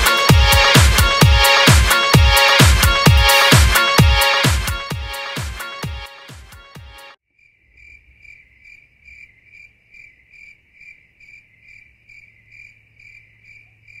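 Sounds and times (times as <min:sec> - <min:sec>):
cricket chirping: 0:07.4 - 0:14.0.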